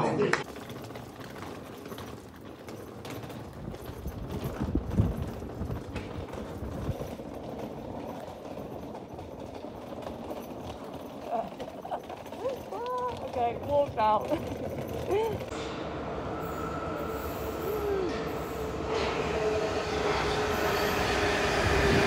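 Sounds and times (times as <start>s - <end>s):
suitcase wheels rattling on stone: 0.4s - 15.6s.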